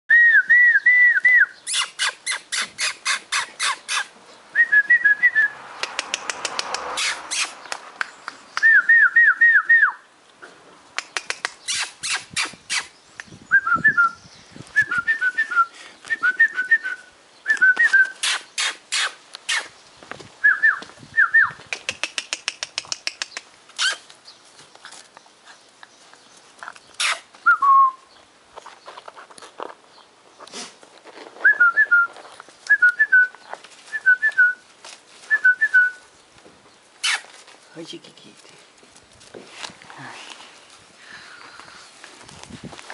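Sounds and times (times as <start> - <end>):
sharp clicks: 5.8 - 8.7, 11.0 - 13.3, 21.6 - 24.2
person whistling: 14.8 - 18.2, 27.5 - 28.0.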